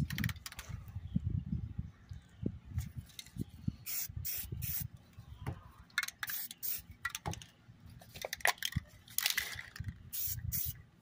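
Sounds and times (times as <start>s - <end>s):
wind rumble on microphone: 0.0s - 5.9s, 9.7s - 10.8s
spray can hissing: 3.9s - 4.8s, 6.3s - 6.8s, 10.2s - 10.8s.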